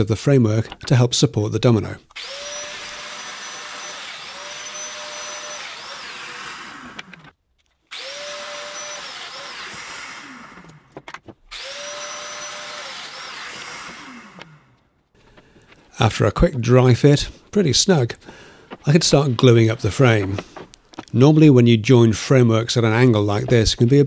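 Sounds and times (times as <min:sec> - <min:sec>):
joiner motor whining and cutting: 0:02.1 - 0:14.9, 0:18.7 - 0:21.2.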